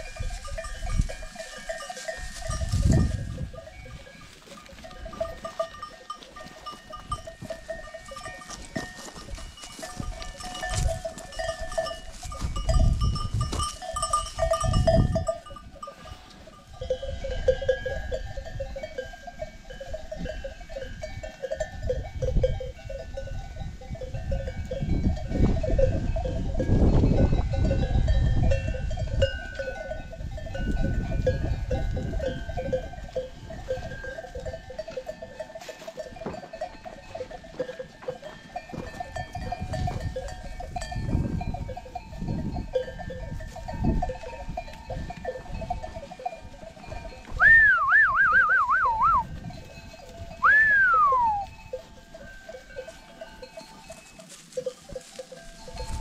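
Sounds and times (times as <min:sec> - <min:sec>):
animal bells clanking and jingling: 0:00.0 - 0:56.0.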